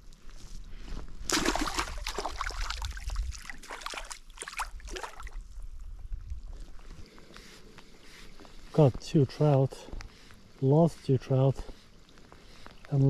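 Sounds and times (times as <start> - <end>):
water sloshing: 1.2 - 5.5
fish splashing in water: 1.3 - 5.4.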